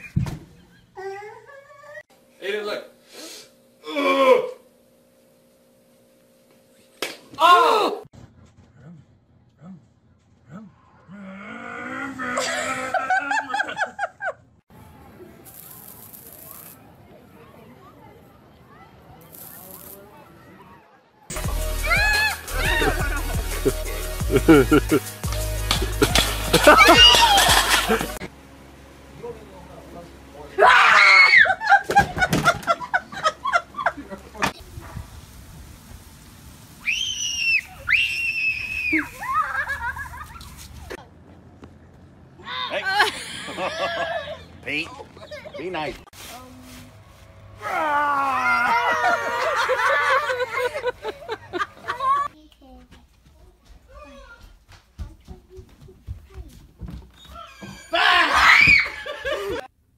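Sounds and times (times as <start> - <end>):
person screaming: 3.8 - 4.6, 7.4 - 8.1, 11.2 - 13.4, 26.6 - 27.8, 47.6 - 49.4, 57.9 - 59.2
person laughing: 12.2 - 14.4, 22.5 - 25.2, 25.8 - 28.3, 39.2 - 40.6, 42.8 - 44.5, 48.2 - 52.3, 57.9 - 59.7
person yelping: 26.6 - 28.0, 57.8 - 59.2.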